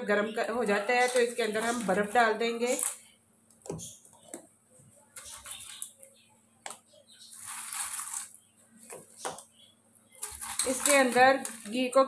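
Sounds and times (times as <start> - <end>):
ice rustling: 7.3 - 8.4, 10.2 - 12.0.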